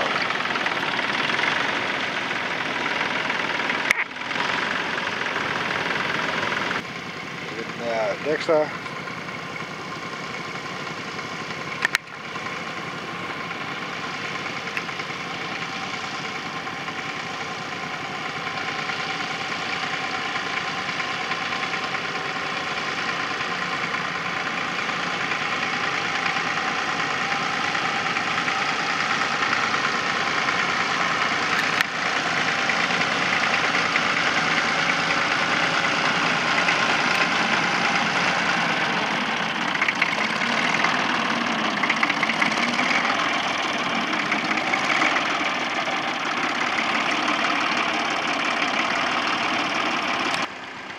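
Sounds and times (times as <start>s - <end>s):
tractor diesel engine running: 0.0s - 50.9s
click: 11.8s - 12.1s.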